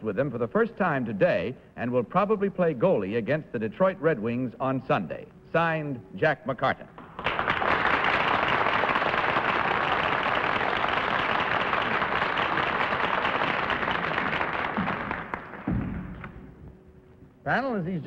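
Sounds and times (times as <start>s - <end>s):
audience applauding: 7.0s - 16.4s
low thump: 15.6s - 16.4s.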